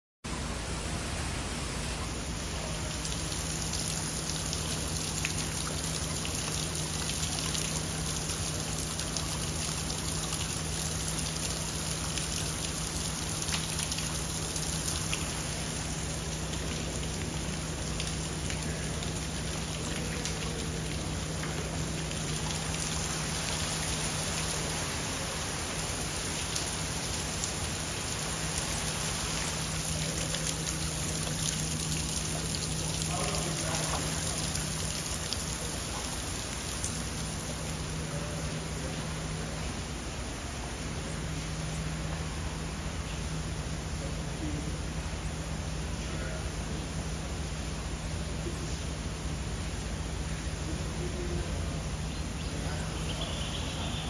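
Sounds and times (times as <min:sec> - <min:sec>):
water splashing: 0:02.0 - 0:39.4.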